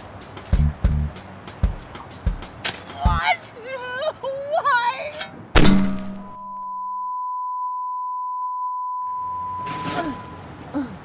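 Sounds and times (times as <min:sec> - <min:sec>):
heavy impact thunk: 0:05.6 - 0:06.4
high-pitched ringing tone: 0:06.2 - 0:10.6.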